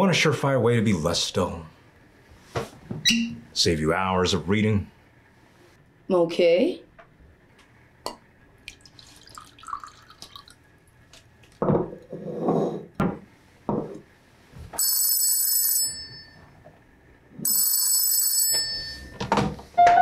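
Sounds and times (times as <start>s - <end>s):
liquid splashing: 8.6s - 10.6s
telephone bell ringing: 14.8s - 16.5s, 17.4s - 19.3s.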